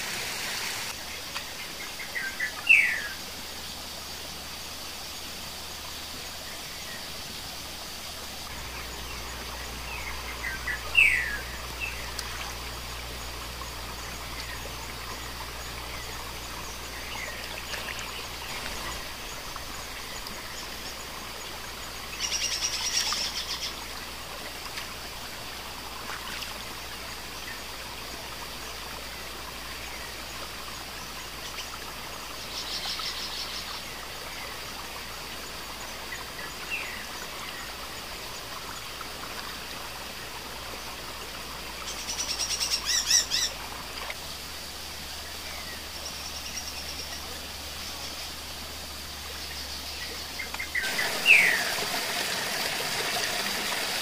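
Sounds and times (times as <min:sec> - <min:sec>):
river water running: 0:00.0 - 0:54.0
birds trilling: 0:50.6 - 0:52.4.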